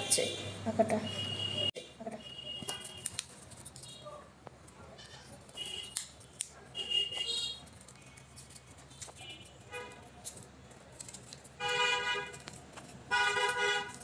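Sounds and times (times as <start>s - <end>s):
horn toots: 13.1s - 14.0s.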